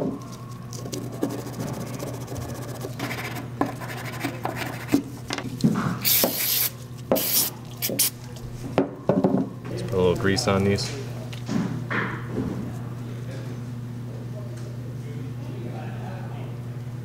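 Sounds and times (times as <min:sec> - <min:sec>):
rubbing on a rag: 0:00.8 - 0:05.0
short hissy bursts: 0:06.0 - 0:08.1.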